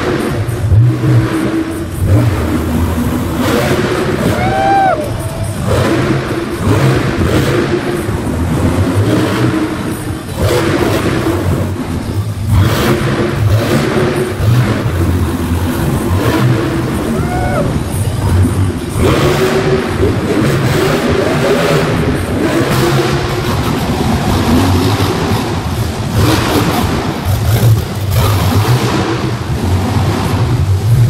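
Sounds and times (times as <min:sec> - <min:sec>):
monster truck engines revving: 0:00.0 - 0:31.0.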